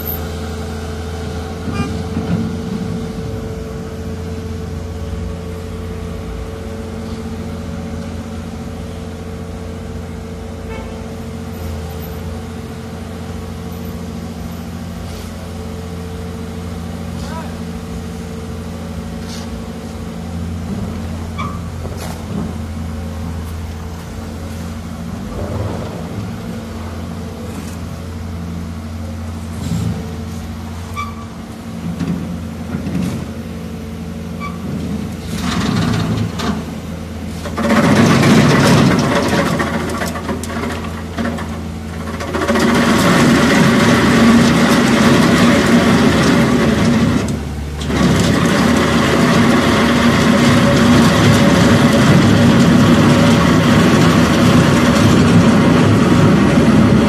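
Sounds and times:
diesel engine running: 0:00.0 - 0:57.0
saw grinding asphalt: 0:34.4 - 0:57.0.

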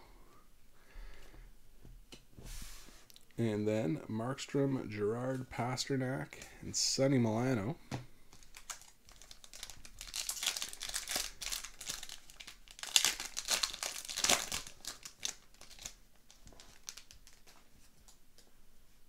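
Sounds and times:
wrapper crinkling: 0:08.3 - 0:17.7
wrapper ripping: 0:08.4 - 0:17.6.

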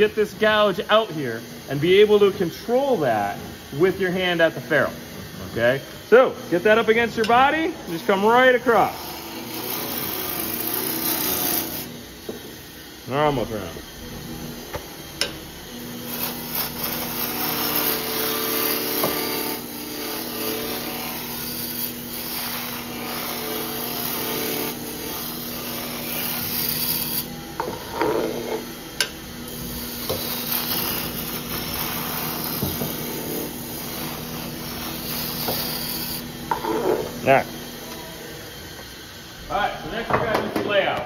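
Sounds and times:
lathe motor humming: 0:00.0 - 0:40.1
gouge cutting wood hiss: 0:16.1 - 0:37.5.

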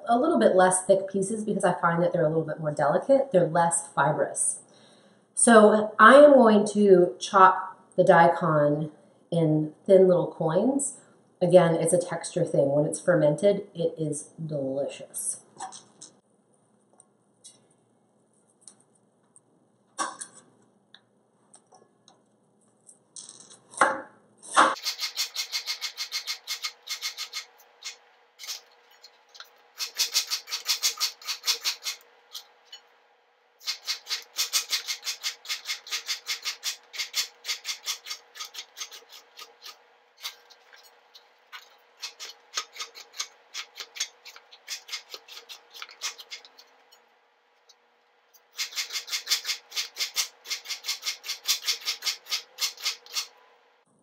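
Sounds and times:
knife cutting on plastic board: 0:24.7 - 0:32.5, 0:33.6 - 0:46.7, 0:48.5 - 0:53.3.

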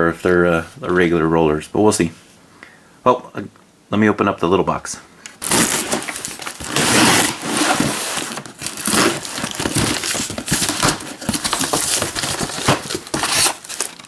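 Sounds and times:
cardboard scraping and rustling: 0:05.4 - 0:14.0
packing tape tearing: 0:05.4 - 0:14.0.

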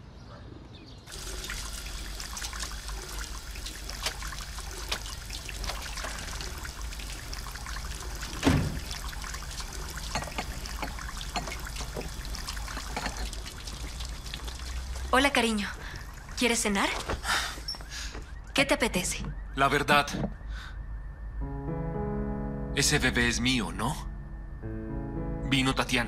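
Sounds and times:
tap water running into sink: 0:01.1 - 0:15.2.

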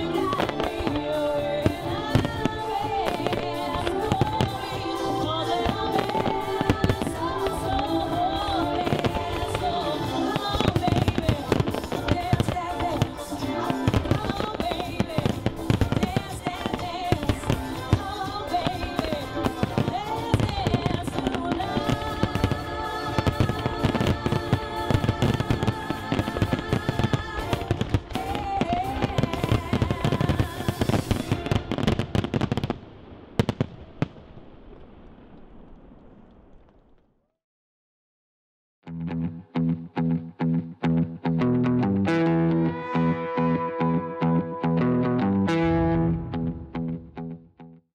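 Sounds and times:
music: 0:00.0 - 0:32.4, 0:38.8 - 0:47.9
fireworks banging and crackling: 0:00.0 - 0:37.1.

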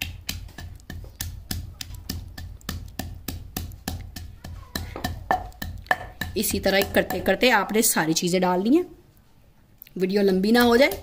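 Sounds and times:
pestle pounding in stone mortar: 0:00.0 - 0:07.8, 0:10.3 - 0:11.0.

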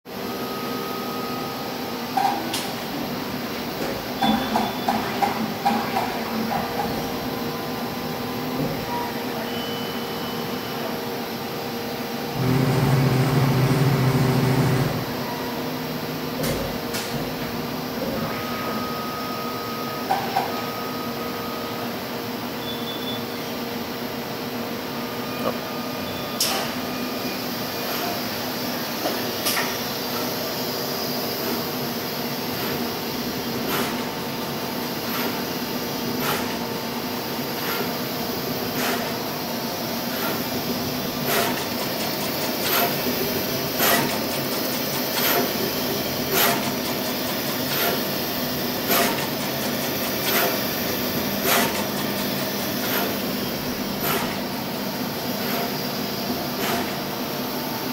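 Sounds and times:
machine hum: 0:11.8 - 0:15.4.

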